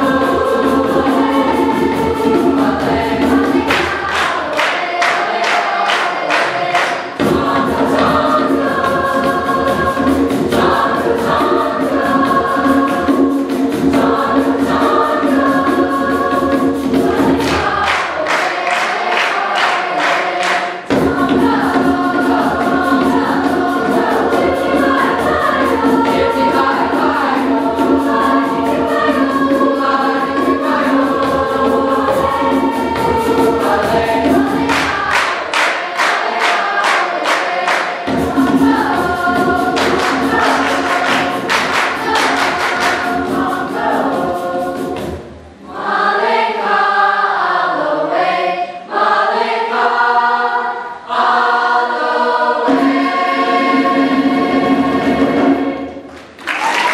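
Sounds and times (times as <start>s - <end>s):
hand drum beating: 0.0s - 19.6s, 20.9s - 37.4s, 38.0s - 45.4s
mixed choir singing: 0.0s - 56.9s.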